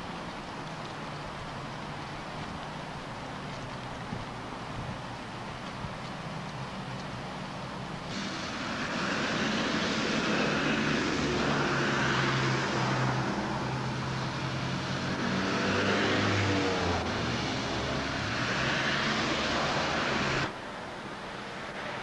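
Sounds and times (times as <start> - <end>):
steady traffic hum: 0.0 - 22.0
cars passing: 6.7 - 22.0.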